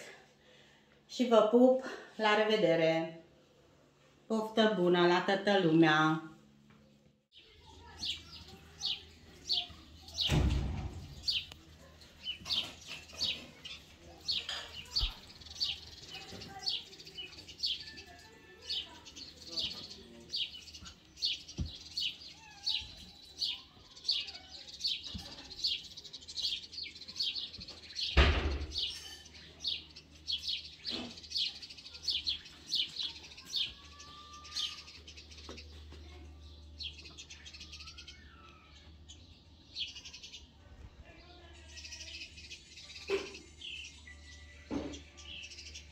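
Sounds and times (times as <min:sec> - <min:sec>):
small birds chirping: 0:06.5 - 0:45.9
thump: 0:10.3 - 0:11.1, 0:28.2 - 0:28.8.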